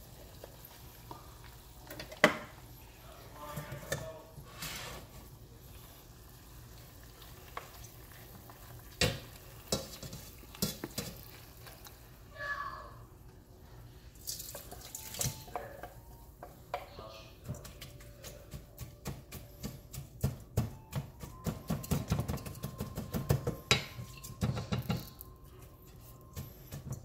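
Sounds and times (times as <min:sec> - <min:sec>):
wooden spoon scraping colander: 0:03.7 - 0:05.3
saucepan knocking colander: 0:17.5 - 0:25.2.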